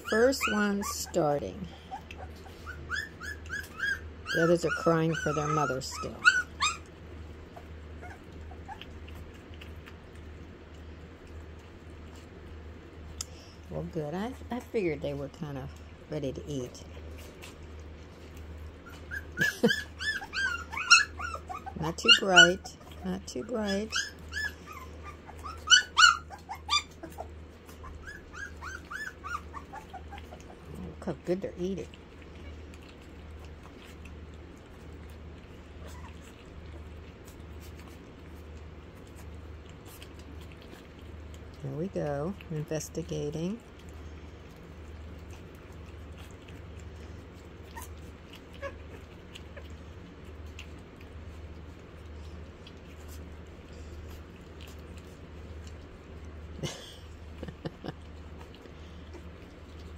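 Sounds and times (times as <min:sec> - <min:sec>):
puppy squeaks: 0:00.0 - 0:01.2, 0:01.9 - 0:06.9, 0:18.8 - 0:30.6
puppies whimpering and yelping: 0:00.0 - 0:59.9
steady low hum: 0:00.0 - 0:59.9.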